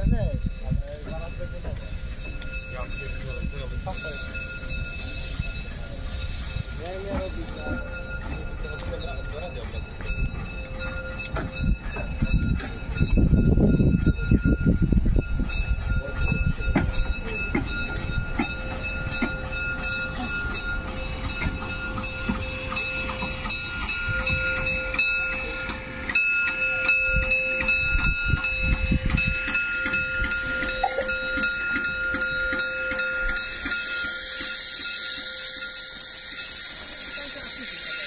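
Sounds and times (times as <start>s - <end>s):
steady tones: 0.0s - 38.0s
steam locomotive rumbling: 0.0s - 38.0s
steam hiss: 1.6s - 8.1s, 29.5s - 38.0s.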